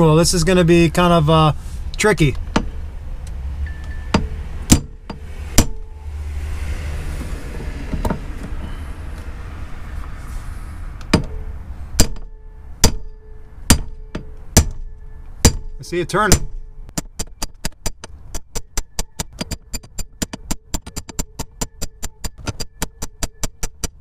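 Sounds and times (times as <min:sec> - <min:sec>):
hammer striking metal screwdriver: 0:03.7 - 0:05.9, 0:12.0 - 0:24.0.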